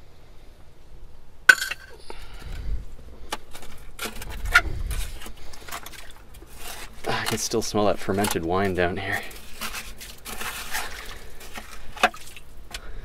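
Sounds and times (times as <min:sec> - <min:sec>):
glass bottles clinking: 0:01.5 - 0:02.0
rustling scrapes: 0:02.4 - 0:12.6.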